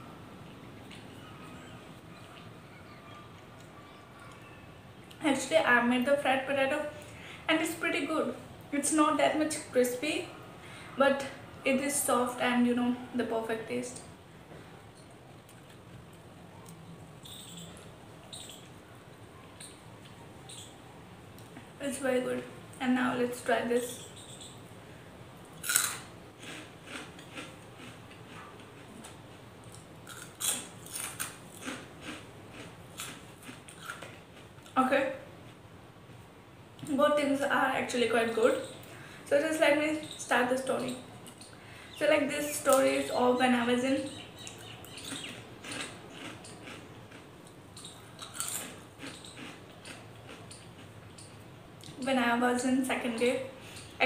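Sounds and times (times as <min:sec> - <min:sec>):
crunching of chips being chewed: 0:25.6 - 0:34.8, 0:44.5 - 0:51.0.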